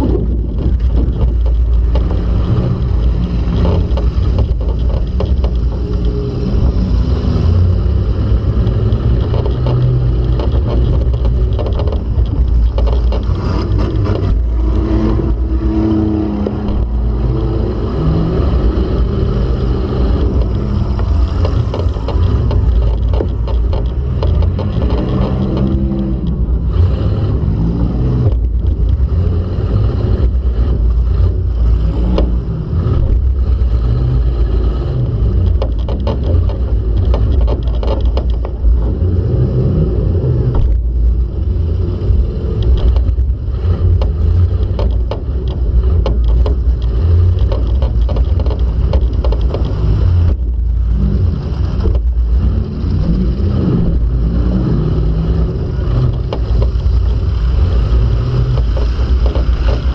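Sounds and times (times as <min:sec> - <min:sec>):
clanking body metal: 0:00.0 - 0:26.8, 0:35.0 - 0:39.5, 0:42.1 - 0:52.6, 0:55.2 - 0:59.9
car engine revving: 0:00.0 - 0:59.9.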